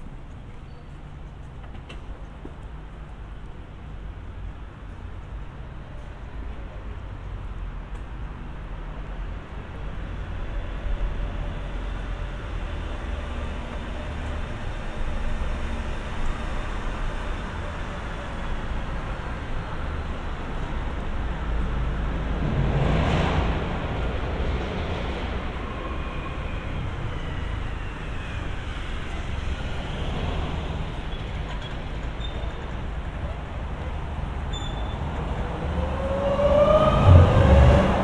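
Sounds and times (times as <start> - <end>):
road traffic rumble: 0.0 - 38.0
vehicle passing close: 35.1 - 38.0.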